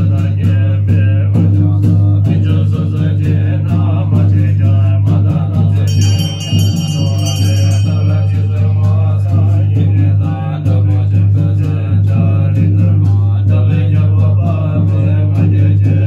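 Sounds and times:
mantra chanting: 0:00.0 - 0:16.0
musical accompaniment: 0:05.9 - 0:09.9
high ringing tones: 0:05.9 - 0:10.0
steady low drone: 0:05.9 - 0:11.2.

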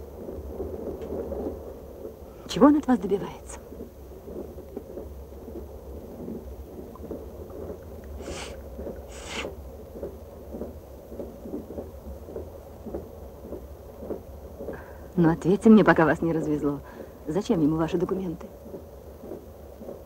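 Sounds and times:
train low rumble: 0:00.0 - 0:20.0
hissing sniffs: 0:08.2 - 0:09.6.

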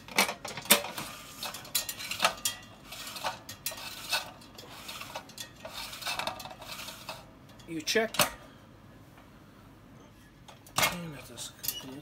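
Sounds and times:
metal clicks and scrapes: 0:00.0 - 0:08.4.

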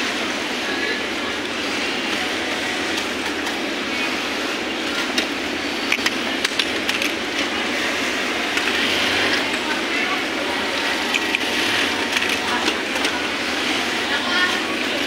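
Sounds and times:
sewing machine motor running: 0:07.8 - 0:09.7, 0:10.6 - 0:15.0.

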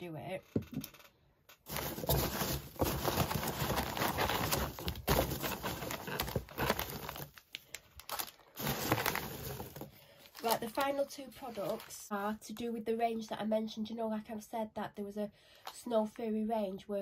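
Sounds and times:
packing peanuts rustling: 0:01.7 - 0:12.2.

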